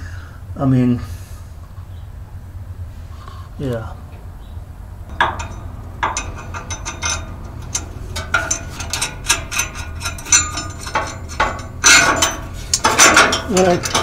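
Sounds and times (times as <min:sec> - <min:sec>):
light metal scraping: 0:05.1 - 0:14.0
metal clicks and clinks: 0:05.1 - 0:14.0.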